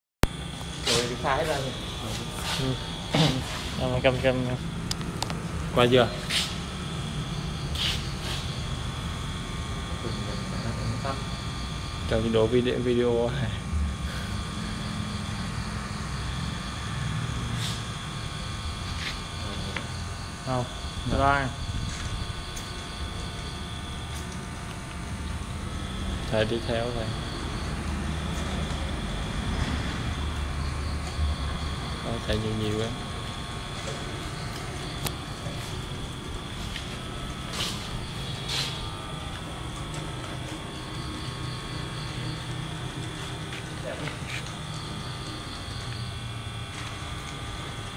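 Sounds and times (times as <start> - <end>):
robot motors humming: 0.2 - 47.9
short hissing bursts: 7.7 - 8.6, 37.5 - 38.9.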